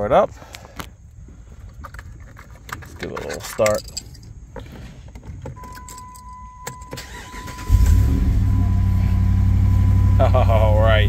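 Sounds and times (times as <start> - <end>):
car engine cranking and idling: 4.6 - 11.0.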